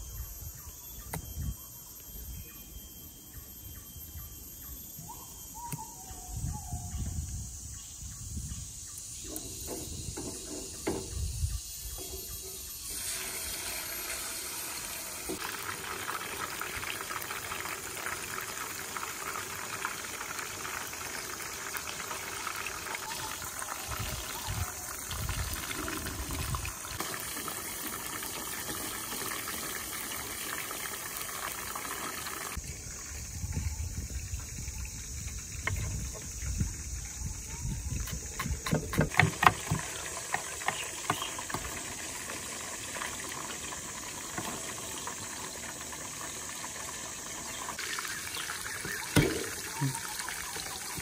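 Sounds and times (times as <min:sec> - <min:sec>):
chicken sizzling in hot oil: 0:12.3 - 0:32.6, 0:39.2 - 0:51.0.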